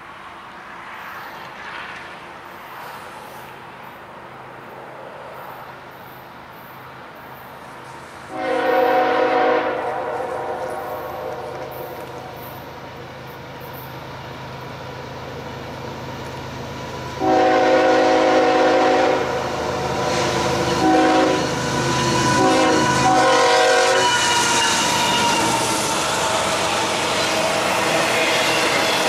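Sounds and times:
train rumble: 0.0 - 29.0
locomotive horn blasts: 8.3 - 12.4, 17.2 - 19.5, 20.6 - 25.5
wheels clattering on rail: 19.9 - 29.0.

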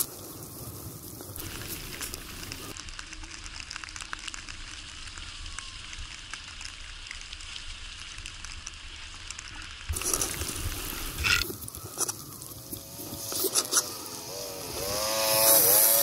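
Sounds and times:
tyres hissing through slush: 9.9 - 16.0.

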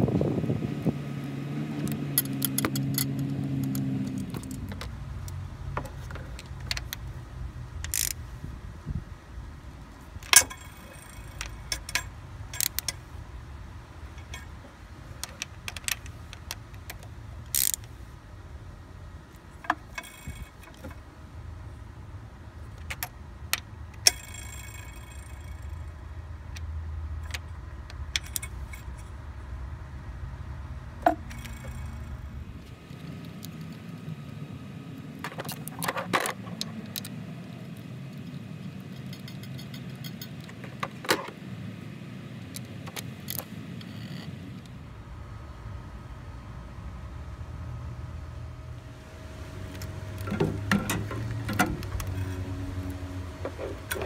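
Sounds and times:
steady low hum: 0.0 - 54.0
socket wrench clinking on metal: 1.8 - 7.0, 7.8 - 8.2, 10.2 - 13.0, 14.2 - 14.6, 15.2 - 17.9, 19.6 - 21.0, 24.0 - 25.9, 27.2 - 29.1, 31.0 - 32.3, 38.2 - 41.0
metallic clicks and jangles of tools: 1.8 - 7.1, 7.8 - 8.2, 10.2 - 13.0, 14.2 - 17.9, 19.6 - 21.0, 23.9 - 26.0, 26.6 - 29.2, 31.0 - 33.9, 35.3 - 41.0.

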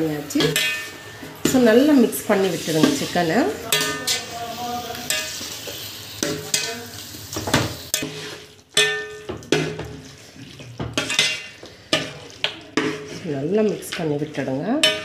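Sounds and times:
wet scraping against metal vessel: 7.9 - 8.6.

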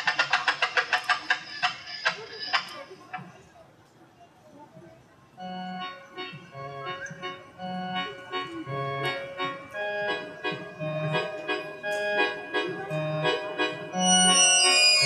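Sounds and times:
keyboard playing held chords: 5.4 - 15.0.

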